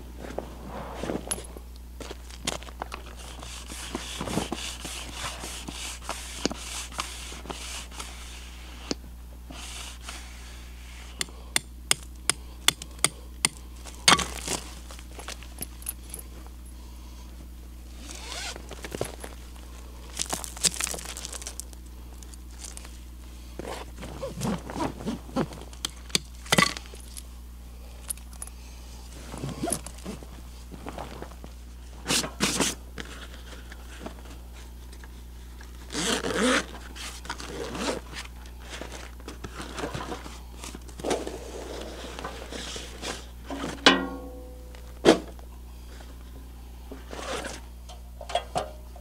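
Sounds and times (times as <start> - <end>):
gear rustling and scraping: 0.1 - 11.3, 12.2 - 16.8, 17.9 - 43.9, 47.0 - 47.9
zipper opening: 18.0 - 18.6, 23.6 - 25.5, 29.4 - 30.2, 35.9 - 38.2.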